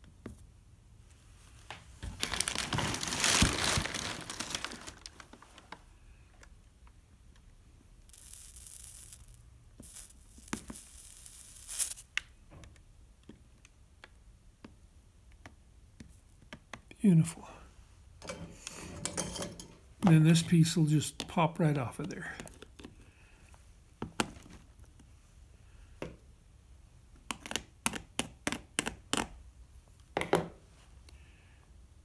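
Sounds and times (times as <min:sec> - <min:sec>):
flux sizzling and crackling: 0:08.0 - 0:12.2.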